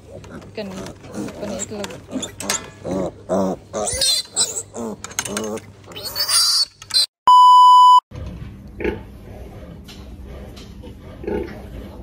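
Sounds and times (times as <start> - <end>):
pig grunts: 0.0 - 6.1, 8.8 - 12.0
piglet squealing: 3.8 - 5.0, 5.9 - 7.1
electronic beep: 7.3 - 8.0.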